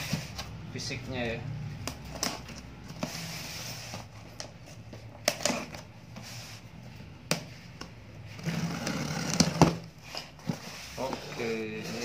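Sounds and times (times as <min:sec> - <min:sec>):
scraping along cardboard box: 0:02.9 - 0:04.1, 0:08.3 - 0:12.0.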